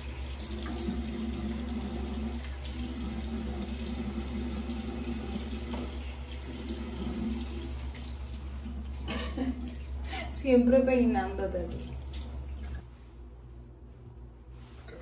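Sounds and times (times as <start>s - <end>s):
sink faucet running: 0.0s - 12.8s
water splashes: 11.0s - 12.8s.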